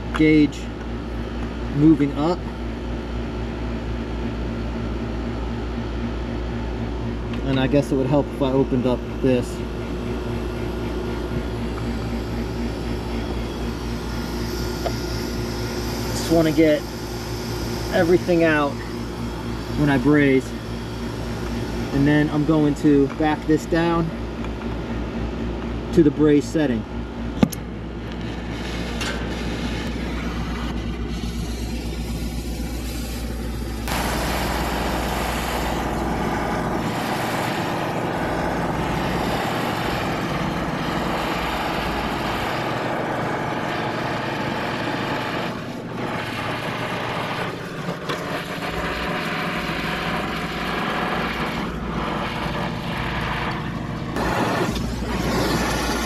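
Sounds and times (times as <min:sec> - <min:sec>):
steady low hum: 0:00.0 - 0:56.0
torch flame hissing: 0:10.0 - 0:22.8, 0:28.1 - 0:44.4, 0:45.1 - 0:56.0.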